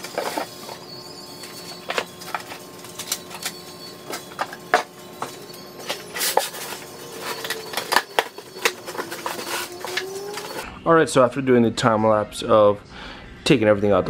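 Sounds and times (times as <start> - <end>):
parts and boxes clattering: 0.0 - 10.6
packaging rustling: 1.4 - 10.6.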